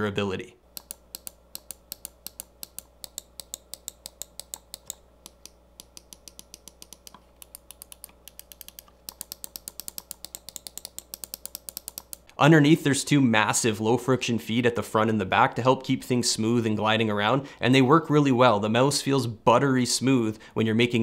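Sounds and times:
mouse buttons clicking: 0:00.7 - 0:12.4.

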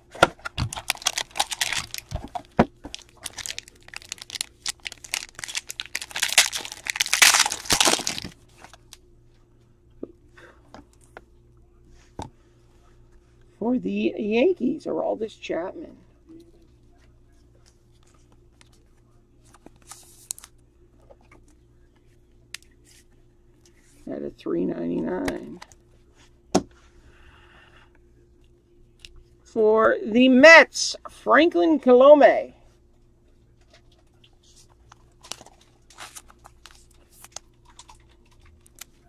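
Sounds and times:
steady low hum: 0:00.0 - 0:39.0
card rustling and clicking: 0:00.2 - 0:08.9
plastic crinkles: 0:00.5 - 0:09.0, 0:19.5 - 0:20.5, 0:33.7 - 0:39.0.

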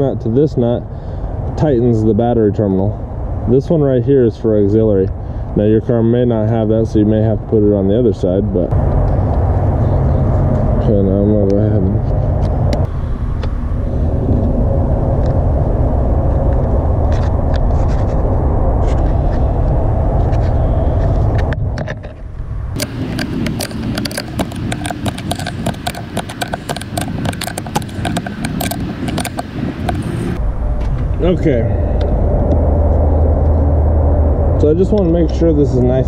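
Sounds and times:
steady low rumble: 0:00.0 - 0:36.0.

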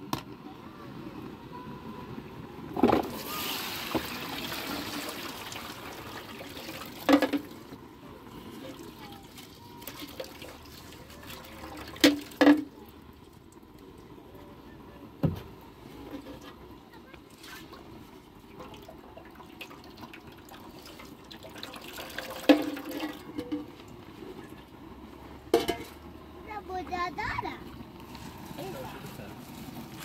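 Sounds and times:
water pouring through colander: 0:03.0 - 0:07.7, 0:08.5 - 0:13.6, 0:17.3 - 0:24.6, 0:28.1 - 0:30.0
metal pot knocking basin: 0:07.1 - 0:07.4, 0:22.2 - 0:23.7, 0:25.5 - 0:26.0.

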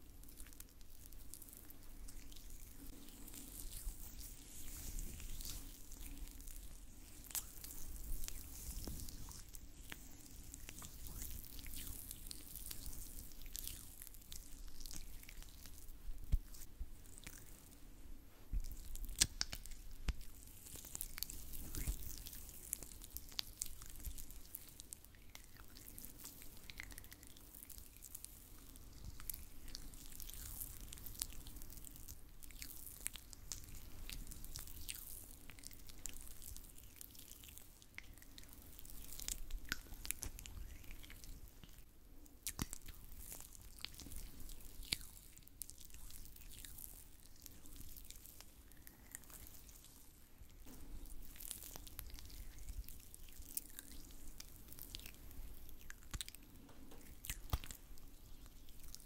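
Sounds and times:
oiled hands rubbing wetly: 0:02.2 - 0:13.3.

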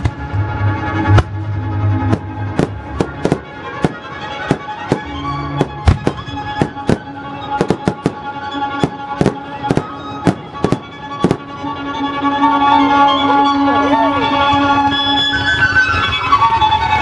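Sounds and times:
music of sustained tones: 0:00.0 - 0:17.0
fireworks bangs: 0:01.1 - 0:11.5.

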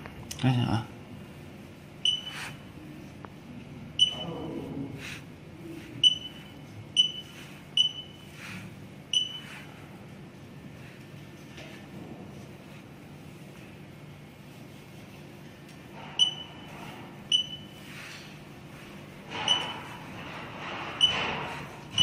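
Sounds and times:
short high-pitched key beeps: 0:02.0 - 0:02.5, 0:04.0 - 0:04.3, 0:06.0 - 0:08.2, 0:09.1 - 0:09.5, 0:17.3 - 0:17.8.

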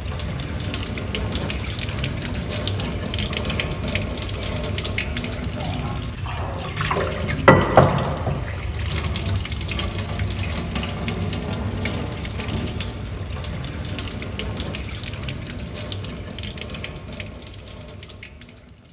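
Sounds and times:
tap running into a sink: 0:00.0 - 0:18.6
sharp knocks: 0:07.4 - 0:08.5.

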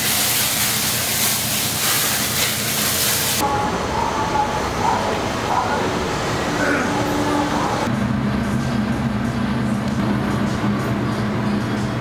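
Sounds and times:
food sizzling on a griddle: 0:00.0 - 0:03.4
quiet street sound: 0:03.4 - 0:12.0.

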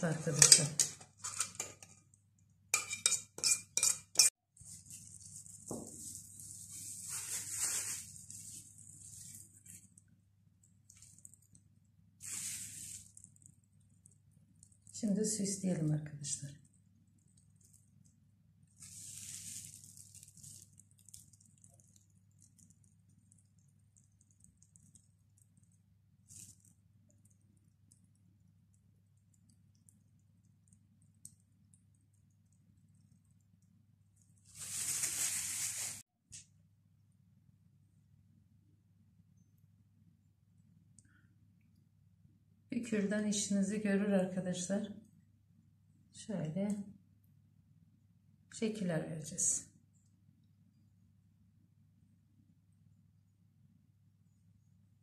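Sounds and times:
low steady hum: 0:00.0 - 0:34.5
metal pot and spoon knocking: 0:00.3 - 0:01.9, 0:02.8 - 0:04.3
plastic bag crinkling: 0:04.6 - 0:10.0, 0:12.2 - 0:13.4, 0:18.8 - 0:21.7, 0:34.5 - 0:36.0
soft steady hiss: 0:04.6 - 0:43.6.

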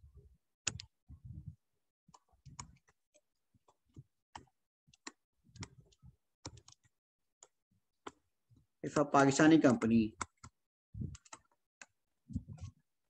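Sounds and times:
stylus tapping on pen tablet: 0:03.7 - 0:08.2.

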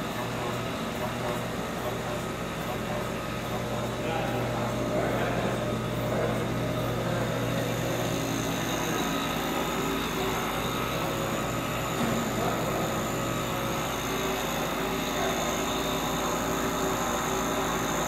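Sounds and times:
compressor humming: 0:00.0 - 0:18.0.

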